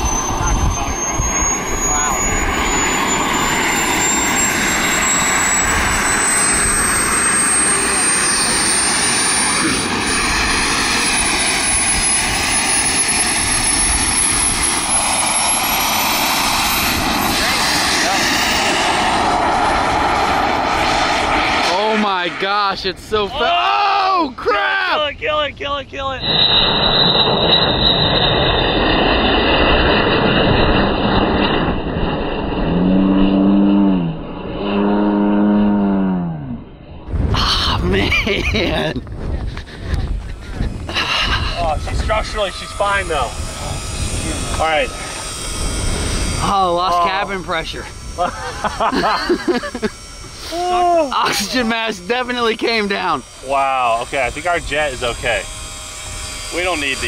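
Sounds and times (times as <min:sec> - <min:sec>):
model jet turbine whine: 0:00.0 - 0:57.0
person shouting: 0:23.2 - 0:25.2, 0:50.5 - 0:51.8.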